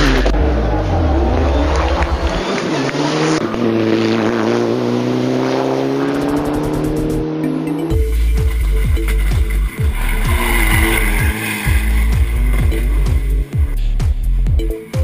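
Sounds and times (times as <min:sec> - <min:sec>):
rally car engine revving: 0:00.0 - 0:14.5
deep pulsing exhaust note: 0:06.2 - 0:14.6.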